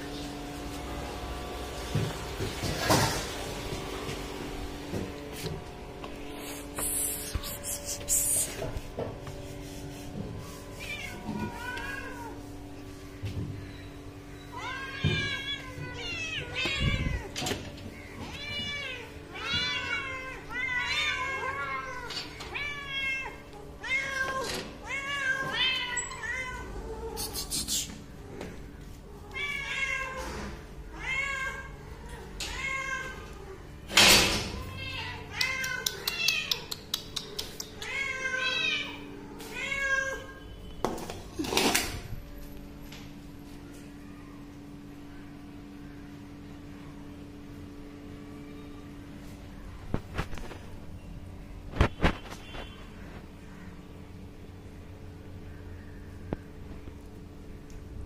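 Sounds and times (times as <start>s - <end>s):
faint hum: 4.3s - 24.0s, 42.0s - 58.0s.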